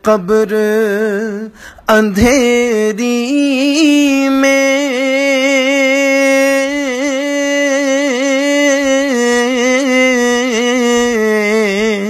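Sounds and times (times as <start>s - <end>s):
person singing a long note: 4.2s - 12.0s.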